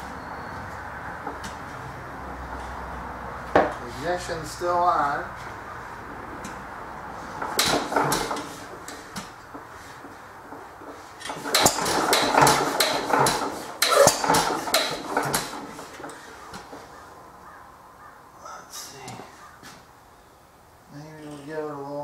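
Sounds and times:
engine metallic clanks and clicks: 2.4s - 3.9s, 6.4s - 17.0s.

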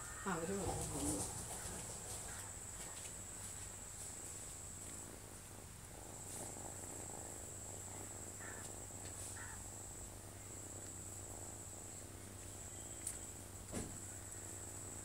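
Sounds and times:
insect trilling: 0.0s - 2.7s, 6.0s - 15.0s.

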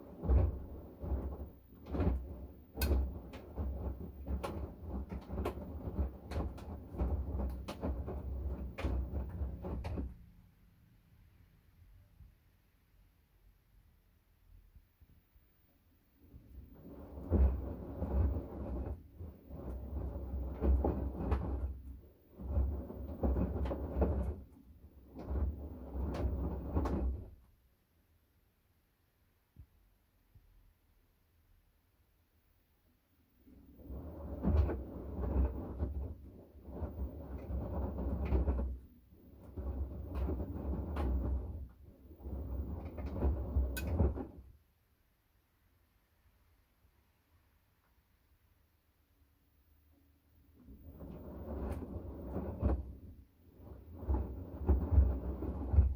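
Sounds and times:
washing machine drum tumbling: 0.0s - 10.4s, 16.2s - 27.4s, 33.5s - 44.6s, 50.6s - 55.9s.

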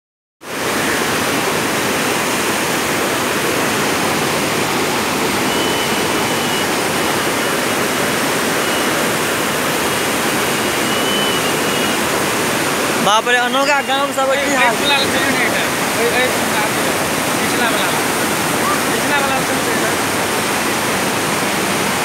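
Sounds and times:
steady loud rushing noise: 0.5s - 22.0s
faint high whistle: 5.4s - 7.6s, 8.5s - 9.1s, 10.5s - 12.1s.

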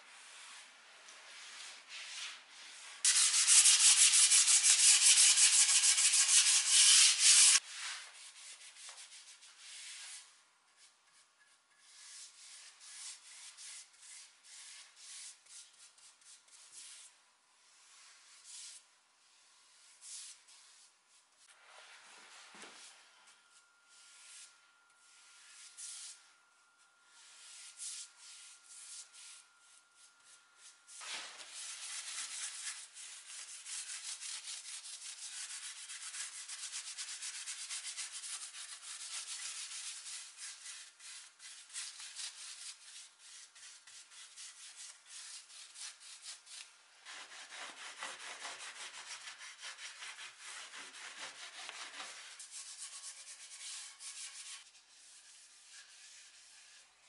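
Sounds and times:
rubbing strokes on wood: 2.0s - 7.6s.

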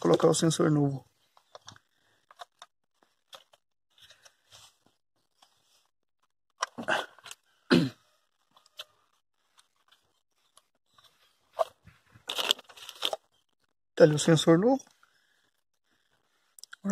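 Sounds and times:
small clicks and scrapes: 1.2s - 7.5s, 8.3s - 13.7s.

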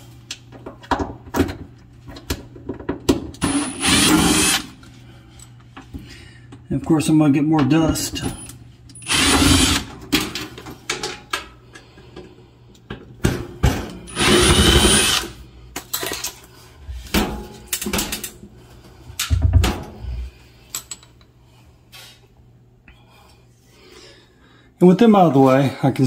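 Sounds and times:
impact driver backing out screws: 9.0s - 9.9s, 14.1s - 15.3s.

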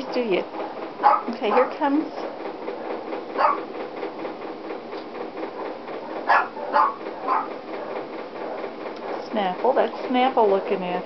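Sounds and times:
animal calls: 3.4s - 3.6s, 6.3s - 7.5s.

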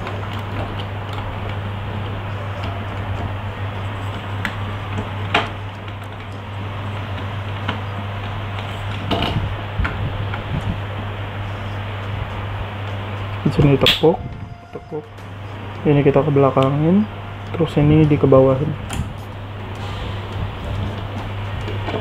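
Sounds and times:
low hum and hiss: 0.0s - 22.0s.

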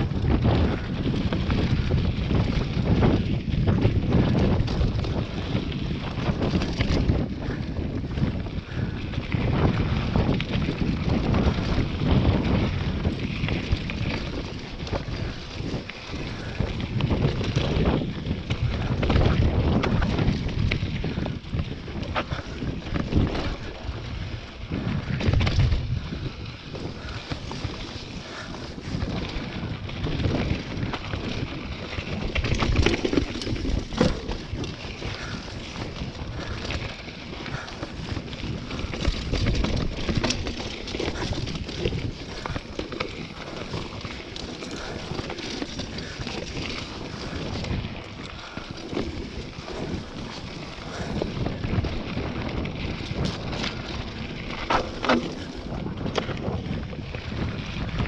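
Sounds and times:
bike knocking and rattling: 0.0s - 58.0s
wind buffeting microphone: 0.0s - 58.0s
tyres crunching over stones: 26.9s - 57.4s.

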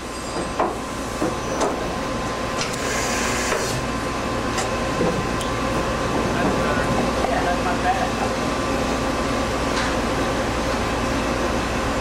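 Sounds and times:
machine mechanical hum: 0.0s - 12.0s.

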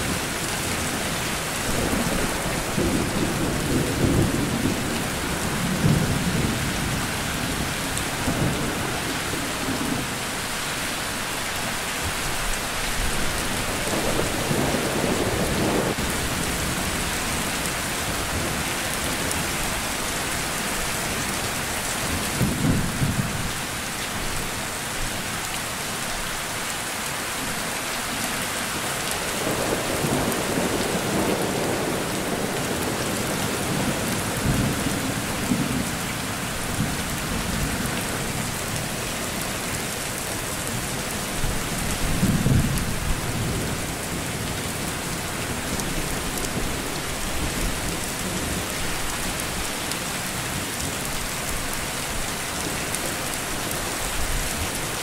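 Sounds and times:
steady rain falling: 0.0s - 55.0s
rumbles of thunder: 1.7s - 10.2s, 41.4s - 44.5s.

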